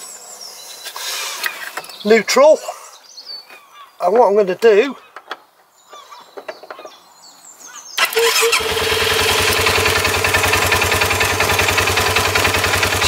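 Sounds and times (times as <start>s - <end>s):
engine idling: 8.0s - 13.0s
starter motor turning: 8.0s - 13.0s.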